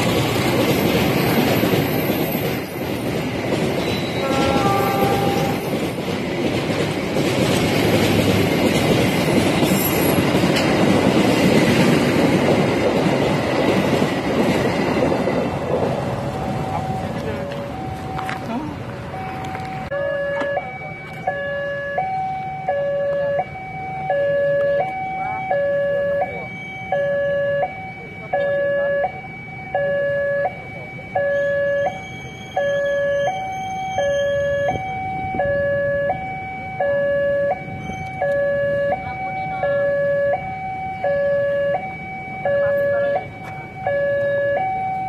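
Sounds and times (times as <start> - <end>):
two-tone railway warning alarm: 0.0 - 45.0.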